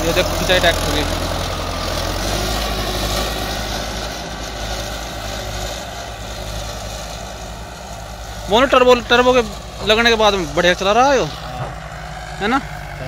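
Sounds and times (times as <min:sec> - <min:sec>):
tractor diesel engine under load: 0:00.0 - 0:13.0.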